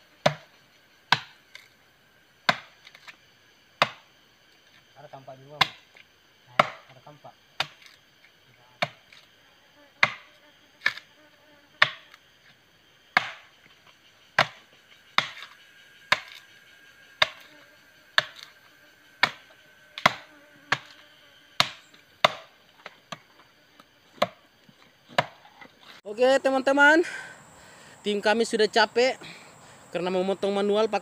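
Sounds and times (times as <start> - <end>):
machete chopping wood: 0.2 - 0.5, 1.1 - 1.7, 2.5 - 3.1, 3.8 - 4.0, 5.6 - 6.0, 6.6 - 6.9, 7.6 - 8.0, 8.8 - 9.2, 10.0 - 11.0, 11.8 - 12.1, 13.1 - 13.5, 14.4 - 14.6, 15.2 - 16.4, 17.2 - 17.5, 18.2 - 18.5, 19.2 - 21.0, 21.6 - 23.3, 24.1 - 24.4, 25.1 - 25.7.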